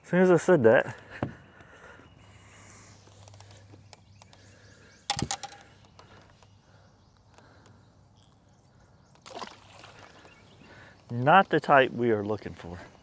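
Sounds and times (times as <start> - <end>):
light handling clicks: 5.1 - 6.5
fish splashing in water: 9.2 - 10.4.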